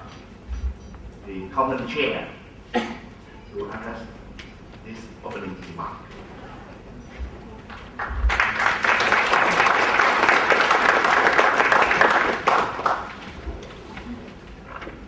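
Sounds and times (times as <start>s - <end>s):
audience applauding: 7.8s - 13.3s.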